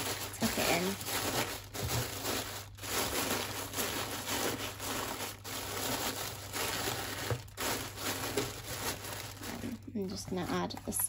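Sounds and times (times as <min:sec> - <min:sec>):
tissue paper rustling: 0:00.0 - 0:11.0.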